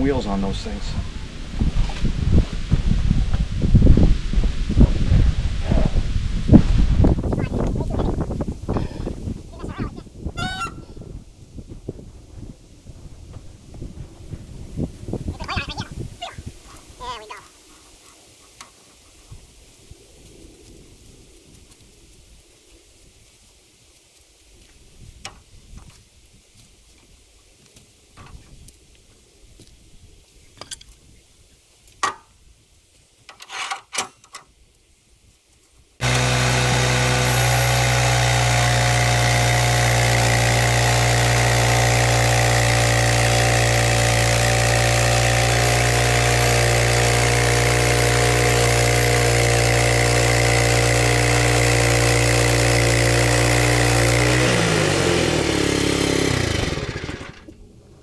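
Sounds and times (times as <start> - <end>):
sawmill gasoline engine running: 36.0 - 57.5.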